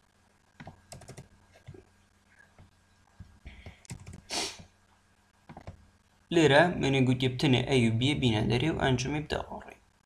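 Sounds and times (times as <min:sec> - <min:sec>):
computer keyboard keys clicking: 0:00.6 - 0:01.3, 0:03.8 - 0:04.2
short hiss: 0:04.2 - 0:04.7.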